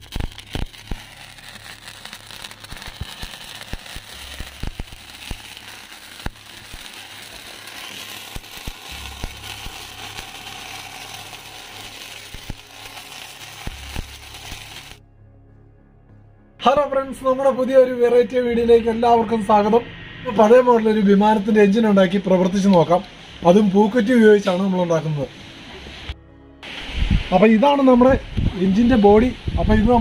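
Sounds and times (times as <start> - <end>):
firework fountain hissing: 0.0 - 15.0, 21.7 - 30.0
sparklers crackling and spitting: 0.0 - 15.0, 22.5 - 30.0.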